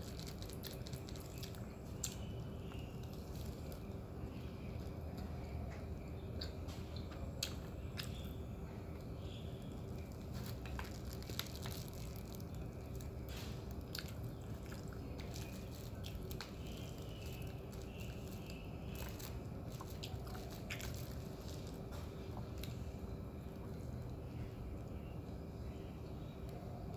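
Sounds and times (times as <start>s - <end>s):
faint steady hum: 0.0s - 26.9s
chewing and biting: 9.9s - 22.8s.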